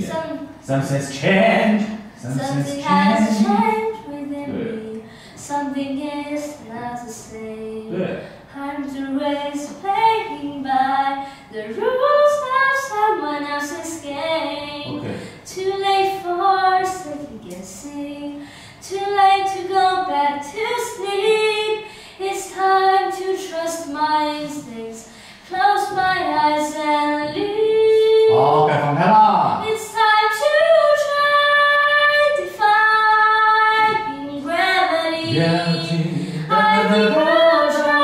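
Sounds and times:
boy singing solo: 2.2 - 4.9, 35.2 - 38.0.

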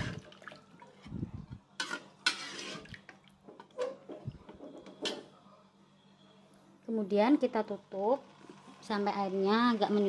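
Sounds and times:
spatula scraping wok: 1.8 - 2.9.

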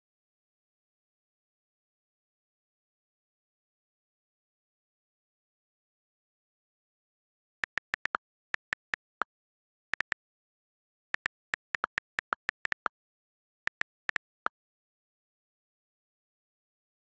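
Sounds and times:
touchscreen keyboard key clicks: 7.6 - 9.2, 11.2 - 12.9, 13.7 - 14.4.

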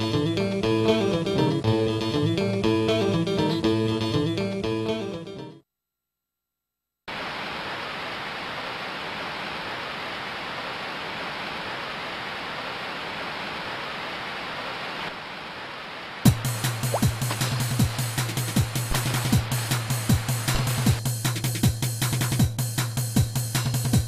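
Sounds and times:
music: 0.0 - 5.6, 16.3 - 24.0
heavy rain hiss: 7.1 - 21.5.

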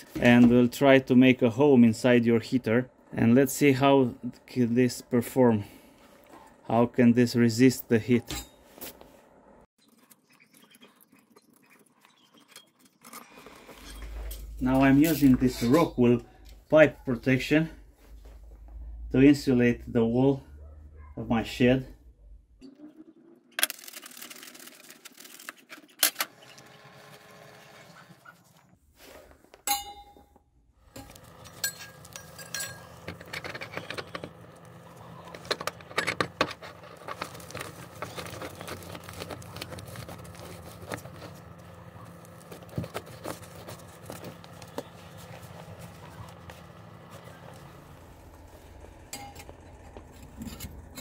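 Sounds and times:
steady low hum: 30.8 - 51.0
clicks and rustles: 30.9 - 51.0
utility knife cutting insulation: 33.5 - 47.7.

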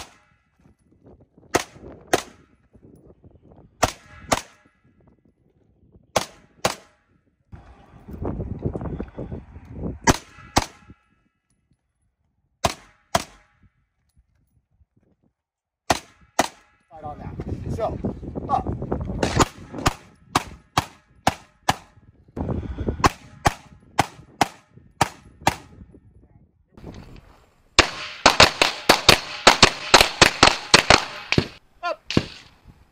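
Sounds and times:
pistol shots: 0.0 - 0.4, 1.5 - 2.5, 3.8 - 4.8, 6.2 - 7.0, 10.0 - 10.9, 12.6 - 13.6, 15.9 - 16.8, 19.2 - 21.9, 27.8 - 32.5.

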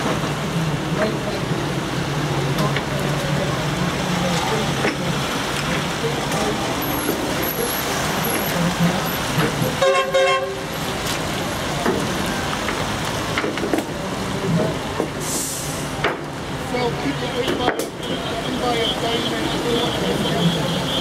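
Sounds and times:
engine and tyre noise: 0.0 - 21.0
car horn blast: 9.8 - 10.6.

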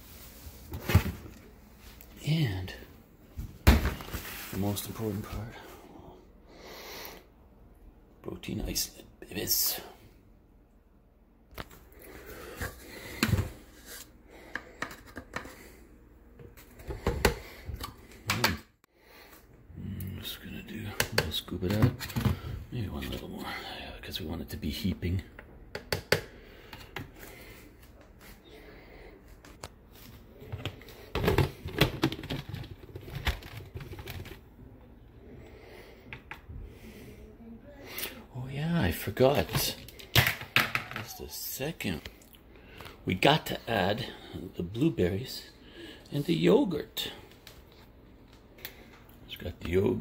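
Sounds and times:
plastic scoop clicking and scraping: 30.6 - 34.4.

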